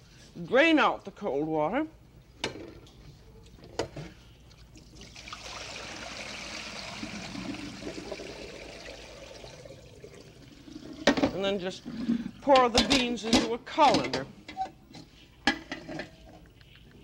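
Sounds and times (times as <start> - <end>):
water pouring into sink: 4.8 - 11.3.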